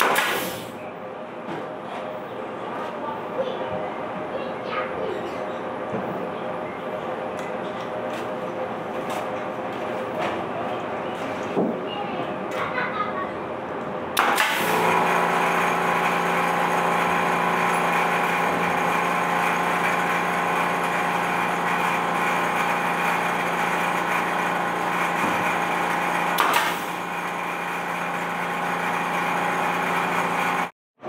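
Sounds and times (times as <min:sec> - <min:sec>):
nail gun firing: 0:00.0 - 0:00.8, 0:14.2 - 0:17.2, 0:23.7 - 0:28.2
air compressor motor humming: 0:14.2 - 0:30.7.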